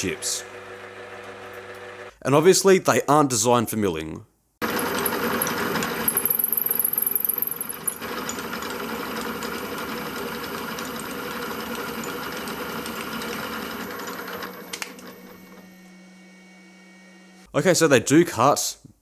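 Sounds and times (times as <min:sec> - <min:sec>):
milling machine cutting metal: 0:04.6 - 0:16.1.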